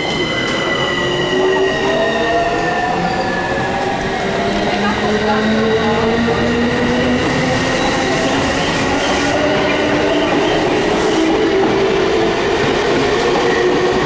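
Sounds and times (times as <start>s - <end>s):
train wheels rumbling: 0.0s - 14.0s.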